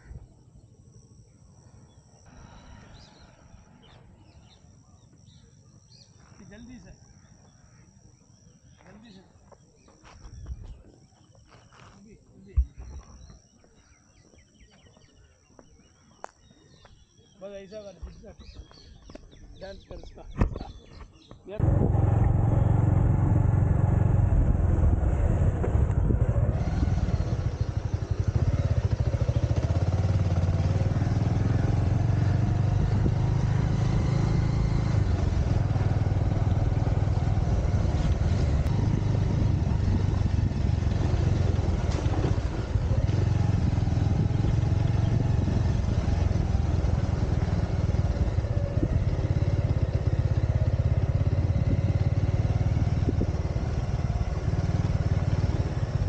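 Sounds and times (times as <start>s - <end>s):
wind and road noise: 8.8s - 14.4s, 17.9s - 56.0s
motorcycle engine running: 21.6s - 56.0s.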